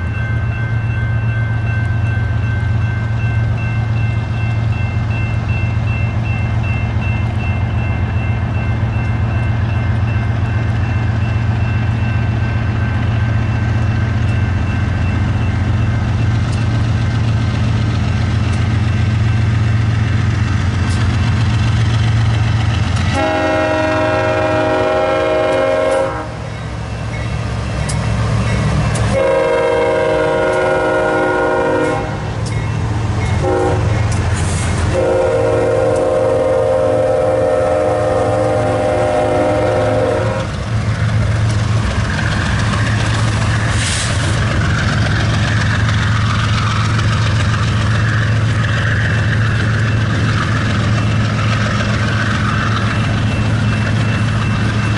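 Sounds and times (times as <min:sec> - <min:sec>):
diesel locomotives rumbling: 0:00.0 - 0:54.9
train air horn blasts: 0:23.1 - 0:26.5, 0:29.1 - 0:32.2, 0:33.4 - 0:34.0, 0:34.9 - 0:40.6.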